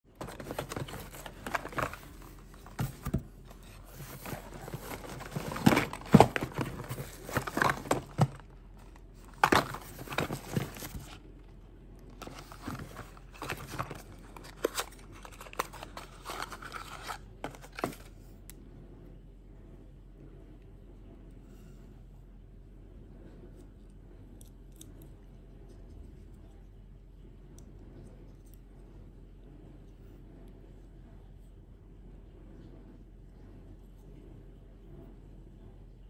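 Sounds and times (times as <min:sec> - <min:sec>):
cardboard boxes rustling and knocking: 0:00.1 - 0:11.2, 0:12.2 - 0:18.1
plastic packing crinkling: 0:00.1 - 0:11.2, 0:12.1 - 0:18.1.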